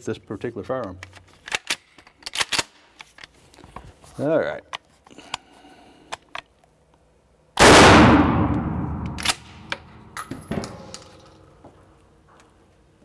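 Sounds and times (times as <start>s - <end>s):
shotgun blast with echo: 7.6s - 9.4s.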